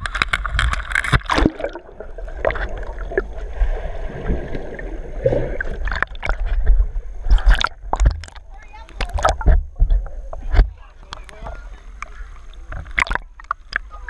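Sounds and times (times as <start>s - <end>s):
underwater bubbling: 0.0s - 14.0s
water sloshing and gurgling: 0.0s - 14.0s
muffled underwater knocks: 5.8s - 11.6s.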